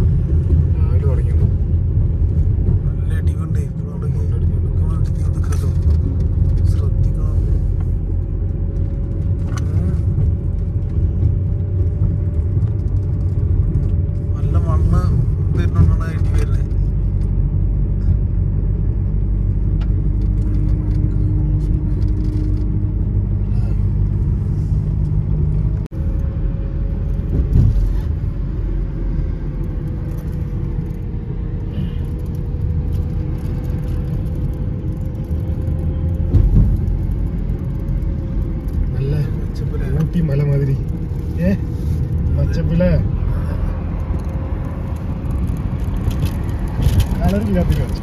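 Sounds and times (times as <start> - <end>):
car tyres and engine rumble: 0.0 - 48.0.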